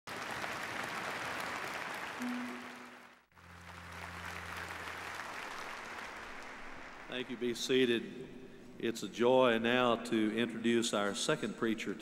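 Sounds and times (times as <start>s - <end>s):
audience applauding: 0.1s - 7.6s
held instrumental notes: 2.2s - 3.0s.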